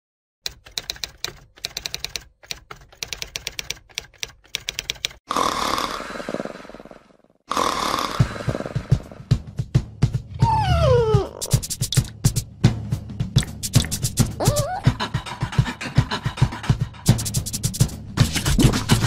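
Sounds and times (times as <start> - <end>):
typewriter clicking: 0.5 - 5.2
low thumping beats: 8.2 - 19.0.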